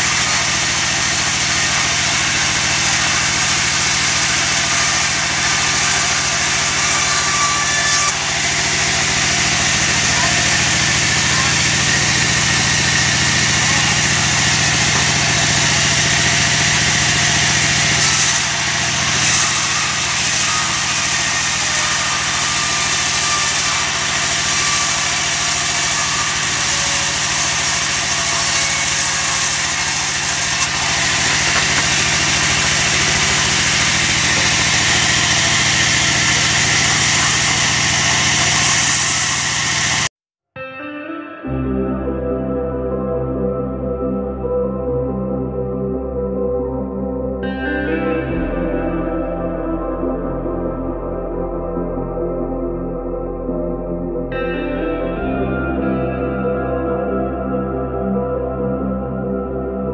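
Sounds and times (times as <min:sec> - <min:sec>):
band sawmill ripping timber: 0:00.0 - 0:40.1.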